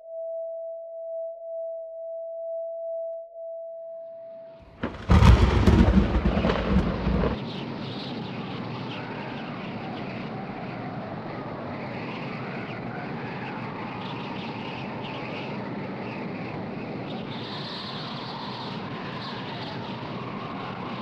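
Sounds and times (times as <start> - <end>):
loud deep rumble: 4.7 - 7.4
steady rushing noise: 4.7 - 21.0.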